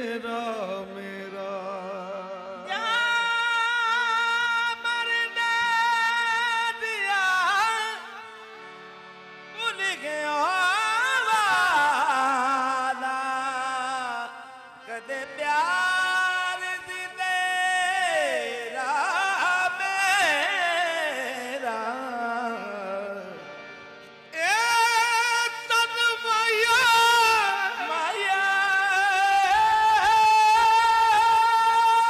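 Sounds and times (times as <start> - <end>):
harmonium notes: 0.0 - 32.0
man singing melismatic runs: 9.5 - 23.4, 24.3 - 32.0.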